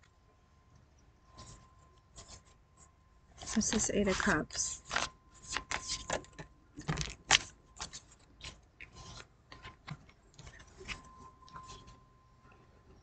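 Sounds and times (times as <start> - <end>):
card flicks and rustles: 3.4 - 11.1
cards being shuffled: 3.4 - 11.8.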